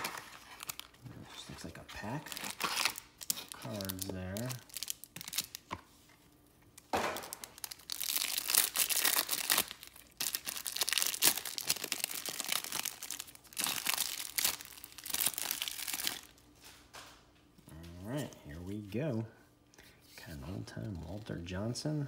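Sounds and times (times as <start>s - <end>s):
plastic wrapper crinkling: 0.0s - 16.7s.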